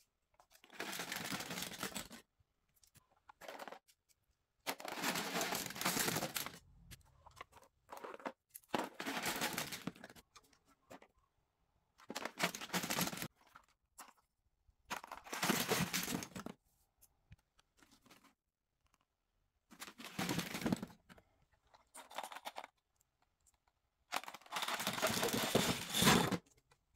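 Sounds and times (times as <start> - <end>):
plastic items clattering into bin: 0.6 - 2.2, 4.7 - 6.6, 7.4 - 10.2, 12.1 - 13.3, 14.9 - 16.5, 19.8 - 21.2, 24.1 - 26.5.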